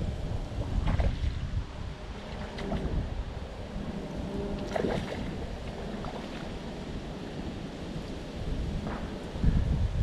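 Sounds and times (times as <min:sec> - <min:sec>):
wind rumbling on microphone: 0:00.0 - 0:10.0
water swirling and splashing: 0:00.4 - 0:08.1.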